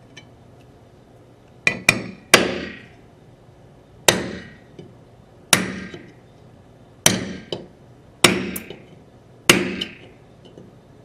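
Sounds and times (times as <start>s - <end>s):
hammer striking steel punch: 1.7s - 2.9s, 4.1s - 4.6s, 5.5s - 6.1s, 7.0s - 8.8s, 9.5s - 10.1s.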